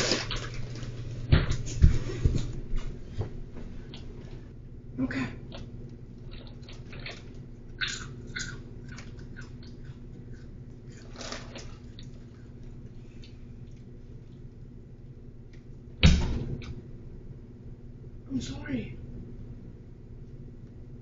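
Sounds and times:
steady low hum: 0.0 - 21.0
crunchy chewing: 5.5 - 14.7
plastic snack package rustling: 10.9 - 12.4.

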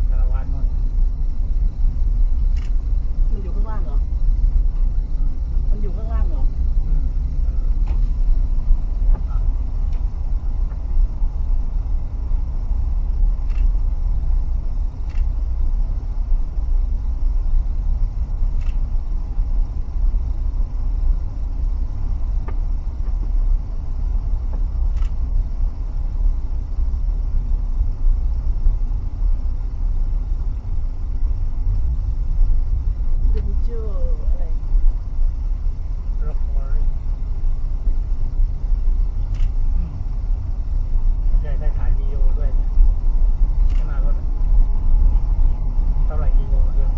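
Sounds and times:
car cabin rumble: 0.0 - 46.9.

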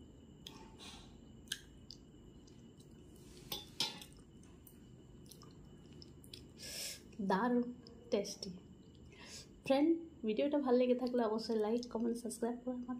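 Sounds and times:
person chewing food: 1.4 - 6.6.

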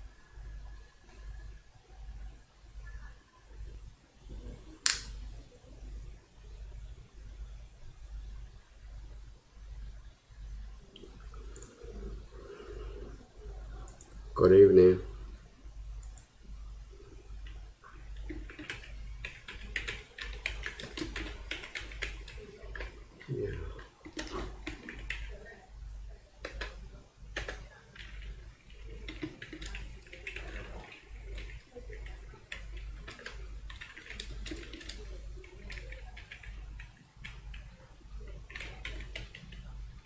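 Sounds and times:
steady low hum: 0.0 - 40.0
keyboard typing: 11.0 - 12.2, 18.2 - 25.5, 26.4 - 26.8, 27.4 - 39.7.

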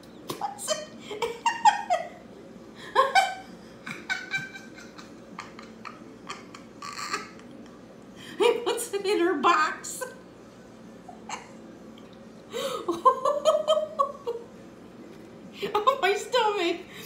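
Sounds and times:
woman laughing: 0.4 - 2.2, 2.8 - 7.6, 11.1 - 11.6, 12.6 - 14.5.

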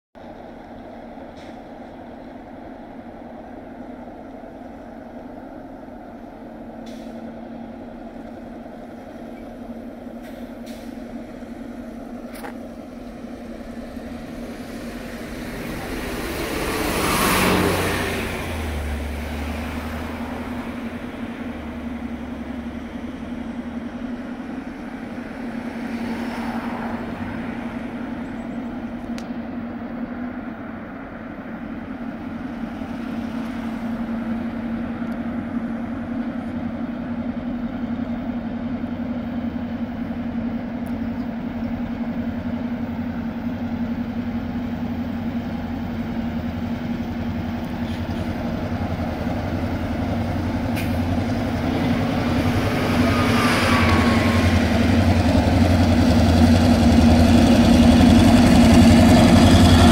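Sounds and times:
diesel locomotive drone: 0.2 - 59.9
vehicle passing by: 14.0 - 22.9, 48.9 - 59.9.

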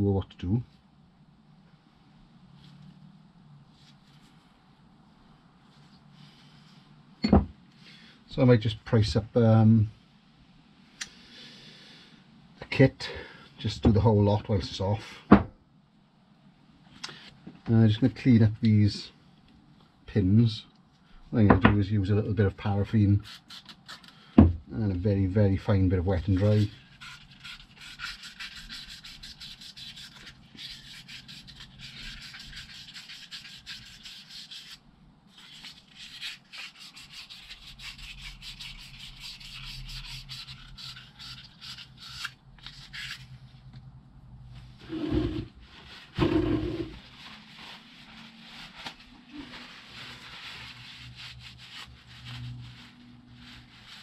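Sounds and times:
abrasive paper rasping on metal: 26.4 - 34.8.

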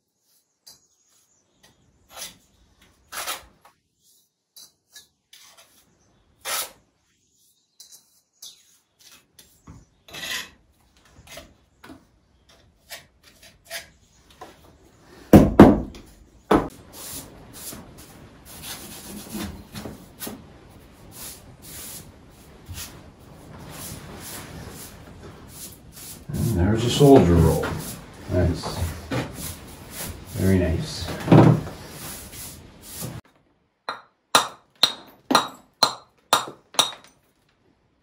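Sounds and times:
trowel scraping mortar: 2.0 - 3.7, 4.6 - 6.8, 12.5 - 14.0
loud knocks: 15.3 - 16.7.

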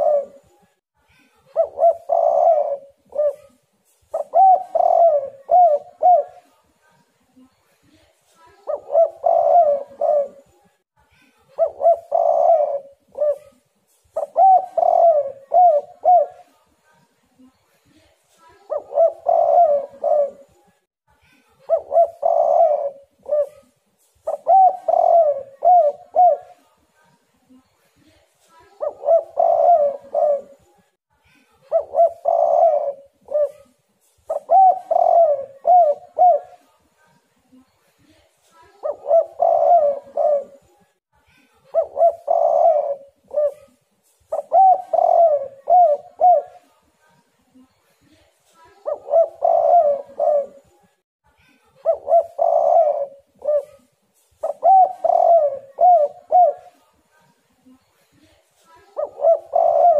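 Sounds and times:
dove cooing: 0.0 - 0.6, 1.5 - 6.5, 8.6 - 10.5, 11.6 - 16.5, 18.6 - 20.6, 21.7 - 26.6, 28.8 - 30.7, 31.7 - 36.7, 38.8 - 40.8, 41.7 - 46.7, 48.7 - 50.8, 51.8 - 56.8, 58.9 - 59.9.

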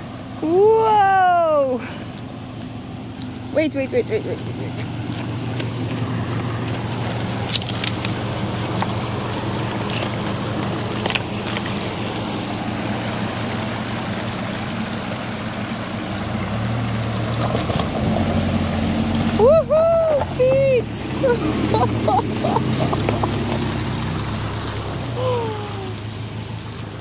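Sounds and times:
running water: 0.0 - 27.0
van engine running low: 0.0 - 27.0
stones clicking under tyres: 2.5 - 3.5, 4.8 - 13.0, 17.1 - 18.2, 22.6 - 23.8.

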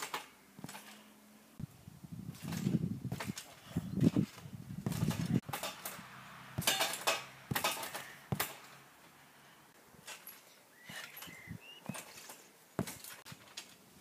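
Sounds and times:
metallic clatter of trampoline springs: 0.0 - 1.1, 2.3 - 8.8, 10.0 - 13.8
dull thuds of trampoline mat: 2.3 - 3.4, 4.0 - 6.0, 6.6 - 8.6, 12.8 - 13.5.

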